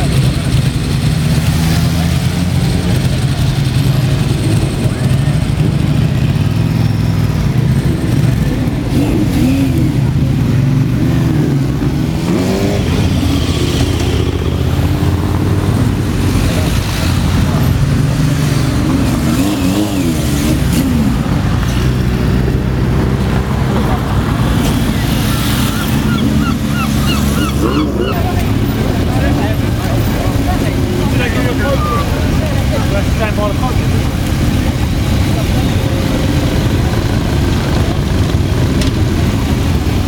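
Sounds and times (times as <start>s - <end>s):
motorcycle engines revving: 0.0s - 40.0s
motorcycle engines running: 0.0s - 40.0s.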